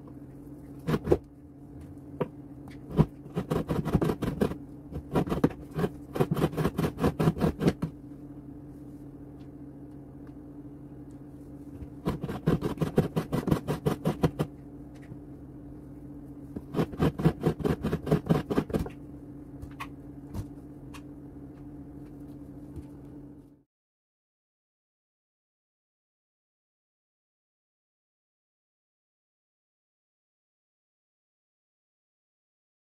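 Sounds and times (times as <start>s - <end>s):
steady low hum: 0.0s - 23.7s
coconut scraping on grater: 0.8s - 1.2s, 2.8s - 7.9s, 12.0s - 14.5s, 16.6s - 18.9s.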